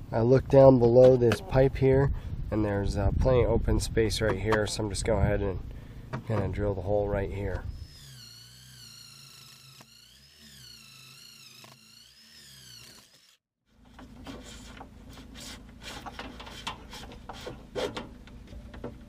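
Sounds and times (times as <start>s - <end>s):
cordless drill whining: 7.6s - 13.5s.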